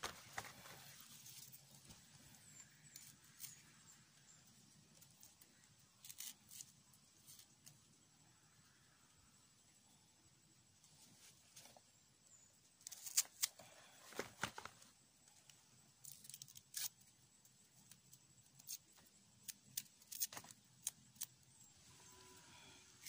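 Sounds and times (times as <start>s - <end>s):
onion cutting and peeling crackles: 0.0s - 3.8s, 5.0s - 7.8s, 12.8s - 13.7s, 16.0s - 21.5s.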